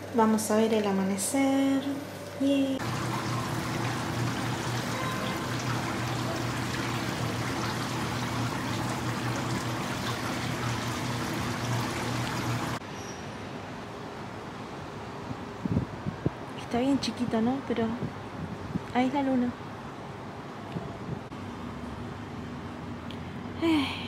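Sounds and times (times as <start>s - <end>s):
low machine hum: 0.0s - 12.8s
city background hiss: 0.0s - 24.0s.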